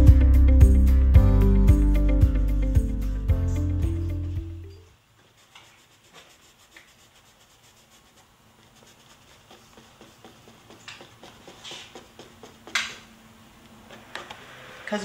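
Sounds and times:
paintbrush scratching on canvas: 5.2 - 12.8.

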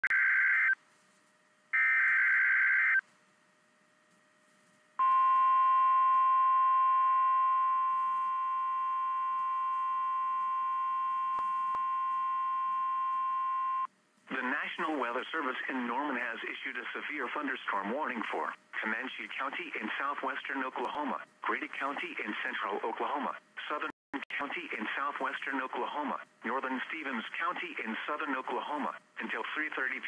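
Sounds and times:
steady warning alarm tone: 1.8 - 3.0.

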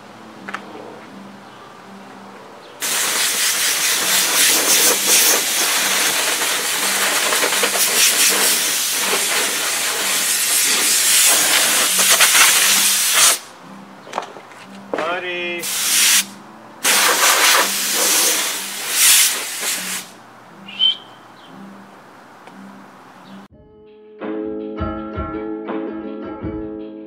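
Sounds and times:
compressed air blow gun blasting: 2.8 - 13.5, 15.6 - 20.2.

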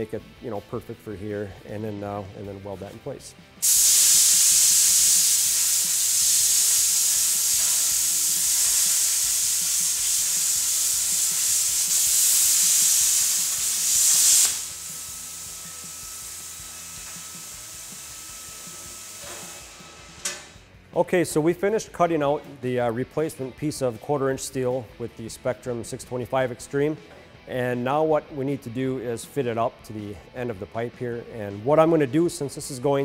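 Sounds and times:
plasma cutter hissing: 3.6 - 20.6.

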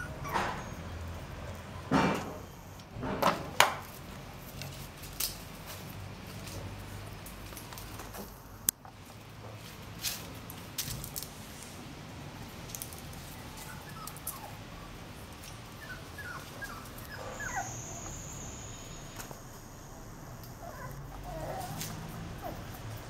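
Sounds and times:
puppies whimpering: 0.0 - 0.9, 13.3 - 19.2, 20.5 - 22.8.

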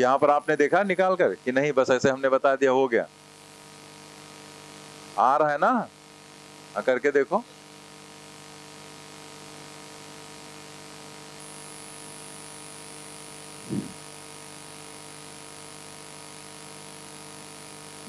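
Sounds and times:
faint high whine: 0.0 - 3.1, 13.6 - 14.0
electrical mains hum: 0.0 - 7.7, 13.5 - 14.0
brief low sound: 13.7 - 14.0.

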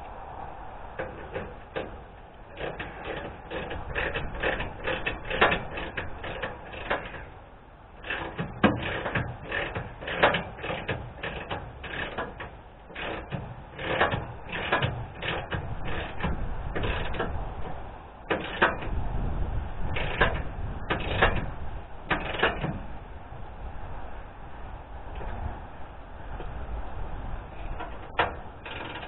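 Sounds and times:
ratchet wrench clicking: 28.2 - 29.0.

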